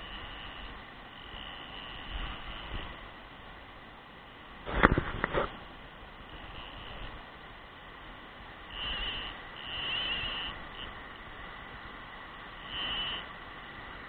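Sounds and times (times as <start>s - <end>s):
short high-pitched buzzes: 0.0s - 3.0s, 6.2s - 7.2s, 8.7s - 11.0s, 12.5s - 13.4s.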